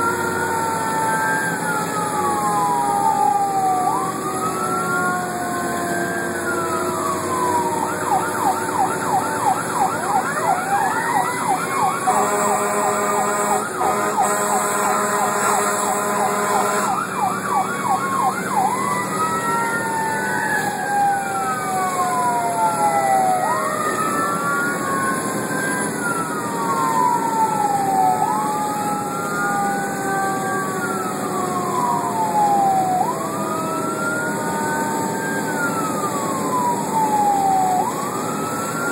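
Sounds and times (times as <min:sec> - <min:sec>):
engine and road noise: 0:00.0 - 0:38.9
fire engine siren: 0:00.0 - 0:38.9
second siren tone gliding down: 0:00.0 - 0:38.9
horn blast: 0:12.1 - 0:16.9.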